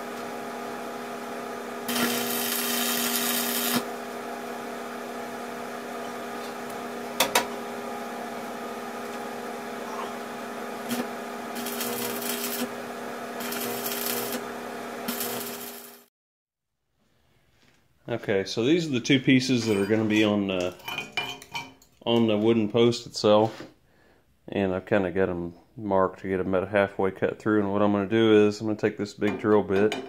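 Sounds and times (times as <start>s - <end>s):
arc welder crackling: 1.6s - 4.6s, 10.6s - 16.1s.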